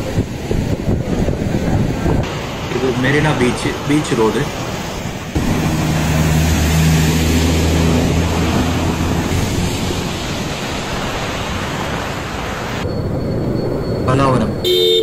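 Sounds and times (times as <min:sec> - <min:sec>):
heavy rain: 0:00.0 - 0:12.8
wind: 0:00.0 - 0:15.0
vehicle engine drone: 0:05.3 - 0:15.0.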